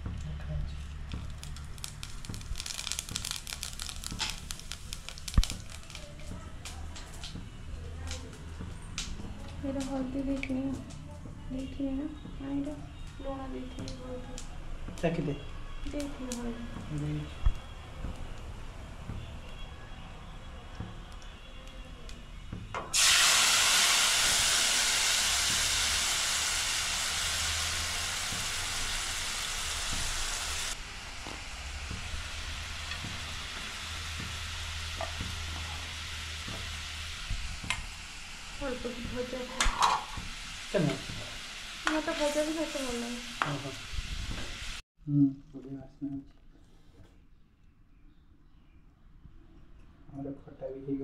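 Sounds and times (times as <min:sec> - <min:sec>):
food sizzling in hot oil: 0:01.1 - 0:07.3, 0:22.9 - 0:44.8.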